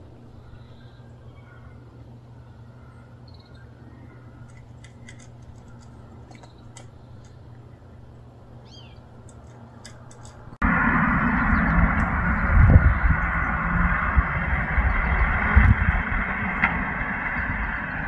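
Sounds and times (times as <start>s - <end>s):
bird chirp: 0.0s - 10.6s, 11.2s - 14.0s
low background hum: 0.0s - 18.0s
cat crunching food: 4.4s - 7.7s
loud even noise: 10.6s - 18.0s.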